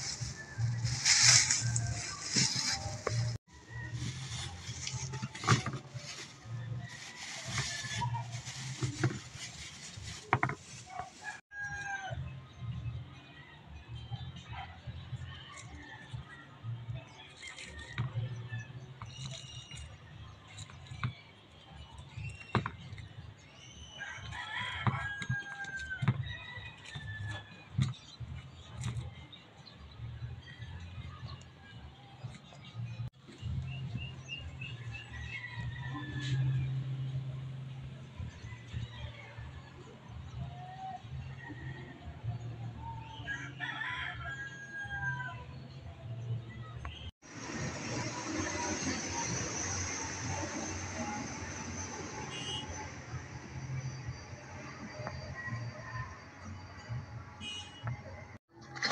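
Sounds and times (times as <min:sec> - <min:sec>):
rooster crowing: 0:43.3 - 0:45.4.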